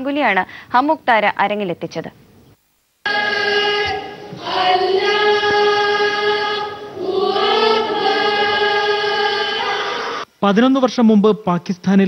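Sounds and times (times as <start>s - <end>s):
choir singing held notes: 3.0s - 10.3s.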